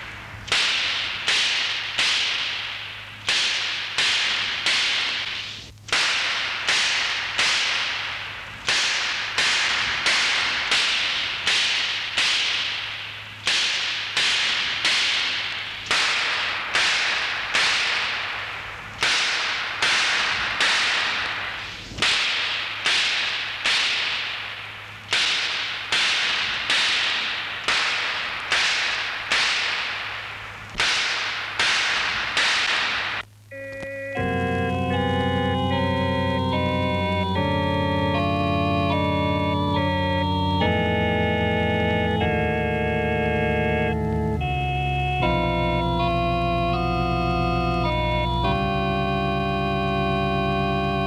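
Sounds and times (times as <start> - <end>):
sharp cracks with hissing decay: 0.0 - 33.4
steady low hum: 0.0 - 51.0.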